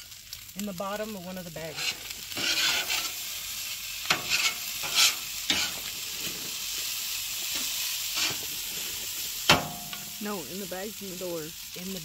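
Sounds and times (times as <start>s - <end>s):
food sizzling on griddle: 0.0s - 12.0s
utensil scraping and knocking griddle: 1.6s - 3.3s, 4.0s - 10.1s.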